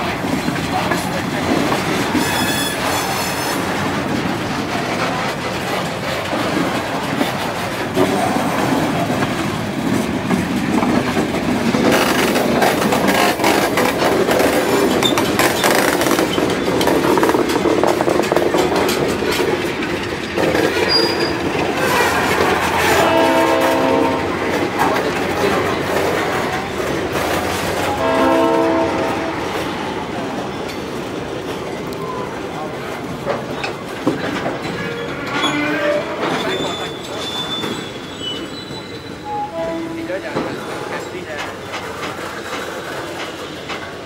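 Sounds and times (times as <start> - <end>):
clicking over rail joints: 0.0 - 32.0, 32.8 - 37.9, 40.3 - 44.0
train wheels rumbling on rails: 0.0 - 44.0
high squeal: 2.2 - 3.6, 34.8 - 39.9.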